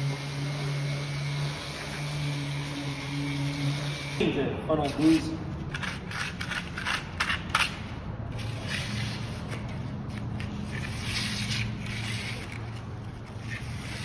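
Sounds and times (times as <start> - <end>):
trowel scraping concrete: 4.8 - 14.0.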